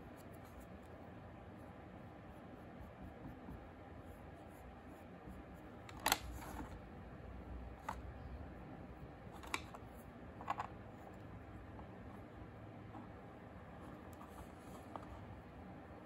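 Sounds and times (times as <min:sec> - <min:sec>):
faint room hiss: 0:00.0 - 0:16.0.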